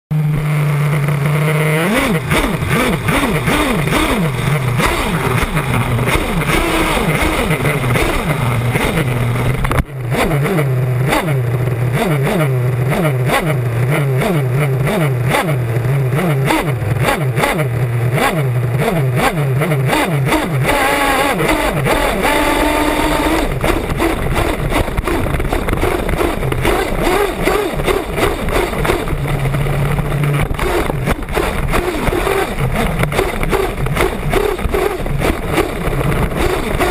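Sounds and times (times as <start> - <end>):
small engine idling and revving: 0.1 - 36.9.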